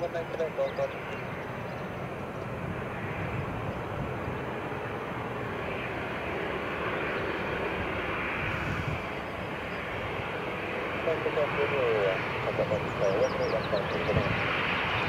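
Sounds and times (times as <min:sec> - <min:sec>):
distant jet engine rush: 0:00.0 - 0:15.0.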